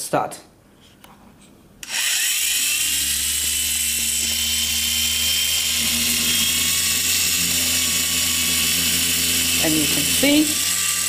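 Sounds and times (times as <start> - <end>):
high-pitched flywheel whine: 1.8 - 11.0
low hum: 1.9 - 11.0.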